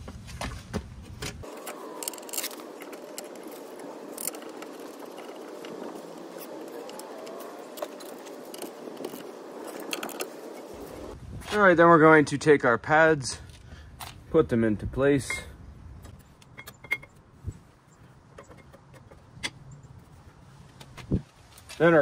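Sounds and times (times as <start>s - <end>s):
metal clinks and scrapes: 15.2s - 17.2s.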